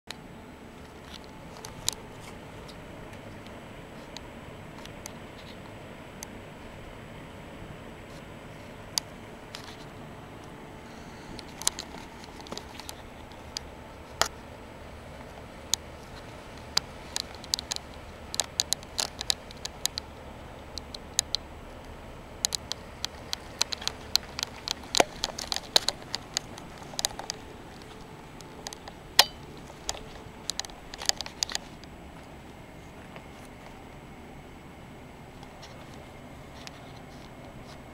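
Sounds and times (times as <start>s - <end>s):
air conditioning unit fan running: 0.1s - 37.9s
sharp clicks and crackles: 0.8s - 6.4s, 8.9s - 14.5s, 15.2s - 32.0s.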